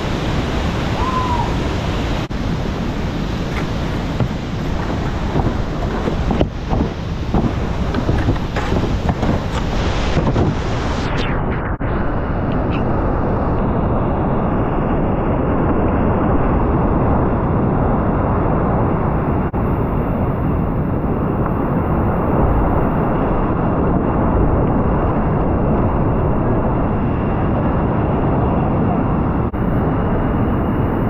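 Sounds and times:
whitewater rushing: 0:00.0 - 0:11.0.

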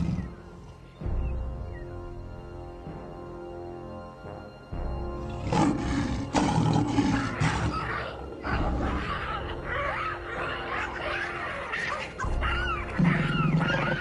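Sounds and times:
lion growling and roaring: 0:00.0 - 0:00.4, 0:05.3 - 0:14.0
background music: 0:00.0 - 0:14.0
shrill wavering cries: 0:07.1 - 0:14.0.

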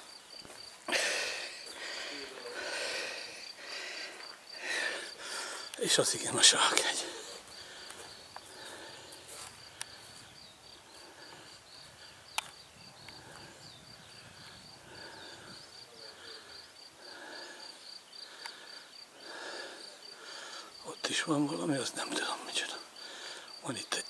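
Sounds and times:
crickets chirping: 0:00.0 - 0:24.0
sharp clicks: 0:12.3 - 0:13.4.

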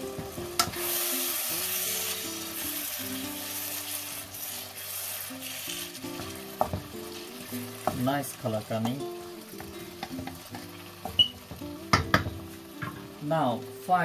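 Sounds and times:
background music: 0:00.0 - 0:14.0
food sizzling in a wok: 0:00.0 - 0:14.0
wooden spatula scraping: 0:02.8 - 0:06.8.

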